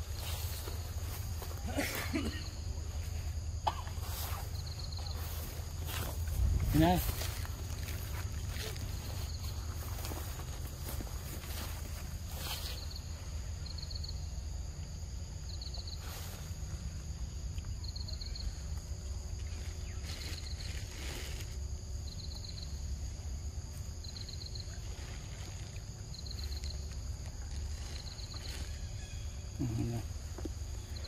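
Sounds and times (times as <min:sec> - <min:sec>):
high insect-like hiss: 0:00.0 - 0:31.0
low rumble: 0:05.8 - 0:10.8.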